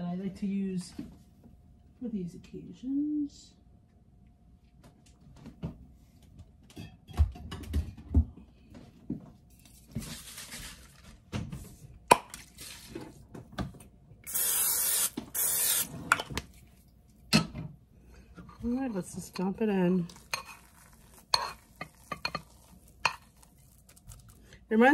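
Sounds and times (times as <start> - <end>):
aerosol spray hissing: 14.3 - 15.9.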